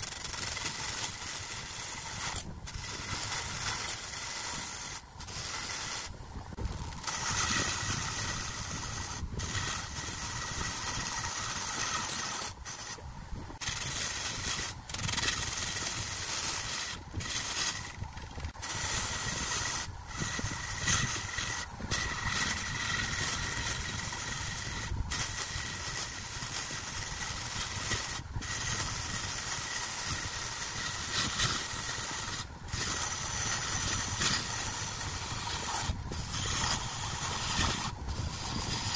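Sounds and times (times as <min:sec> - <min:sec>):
wood lathe cutting: 0:06.8 - 0:13.0, 0:13.6 - 0:38.9.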